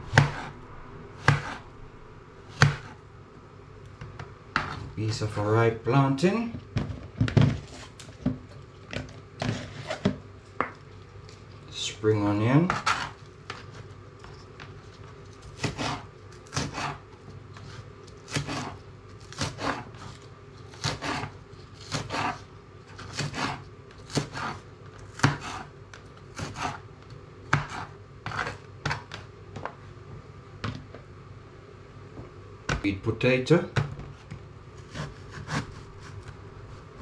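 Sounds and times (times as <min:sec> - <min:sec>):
knife chopping on plastic board: 0:00.1 - 0:00.5, 0:01.2 - 0:01.6, 0:02.5 - 0:03.0, 0:15.6 - 0:17.0, 0:18.3 - 0:19.9, 0:20.8 - 0:21.3, 0:21.9 - 0:22.4, 0:23.0 - 0:25.7, 0:26.3 - 0:26.8, 0:27.5 - 0:29.2, 0:34.9 - 0:36.4.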